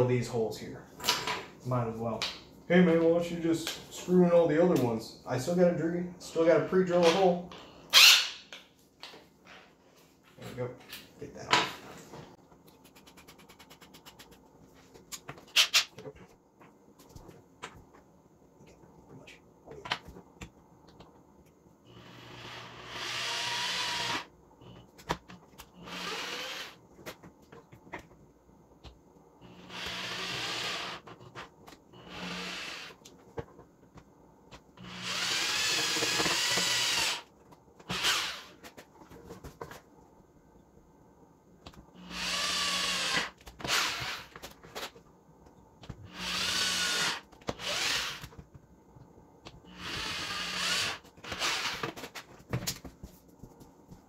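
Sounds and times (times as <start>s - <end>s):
electric drill whining: 21.9s - 24.3s, 25.8s - 26.8s, 29.4s - 31.3s, 32.0s - 33.0s, 34.8s - 37.2s, 37.9s - 38.5s, 42.0s - 44.3s, 46.1s - 48.3s, 49.7s - 51.8s.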